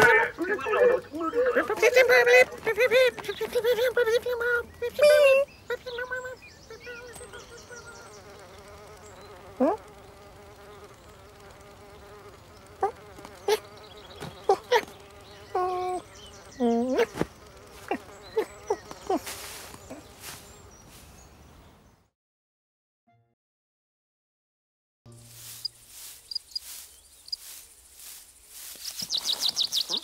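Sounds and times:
cartoon fly buzzing: 0:00.0 - 0:21.2, 0:25.1 - 0:30.0
sharp chirps and squeaks: 0:25.5 - 0:30.0.

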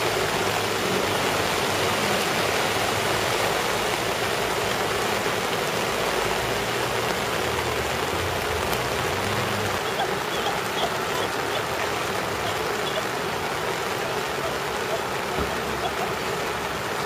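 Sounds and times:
car engine hum: 0:00.0 - 0:17.0
heavy rain and running water: 0:00.0 - 0:17.0.

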